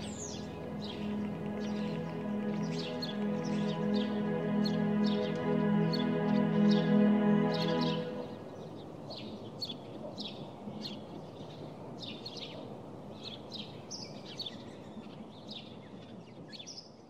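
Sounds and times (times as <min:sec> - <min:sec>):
small birds chirping: 0:00.0 - 0:12.6
low background noise: 0:00.0 - 0:17.0.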